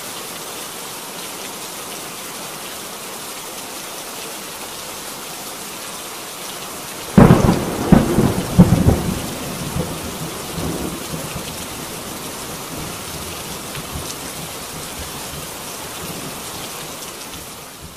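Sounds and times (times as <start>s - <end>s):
steady rain: 0.0s - 17.9s
thunderclap: 7.1s - 12.0s
thunder rumble: 7.1s - 16.4s.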